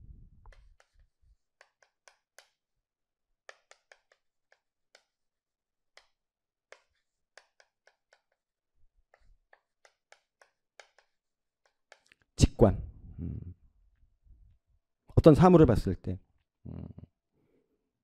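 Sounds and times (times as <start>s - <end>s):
chalk tapping on chalkboard: 0.5s - 2.6s, 3.5s - 5.2s, 5.9s - 12.2s.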